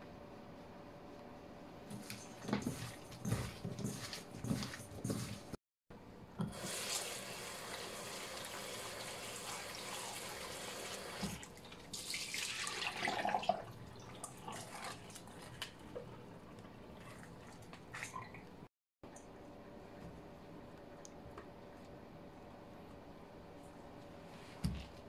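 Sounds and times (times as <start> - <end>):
kitchen tap running: 6.4 - 15.2
water sloshing into sink: 6.4 - 16.1.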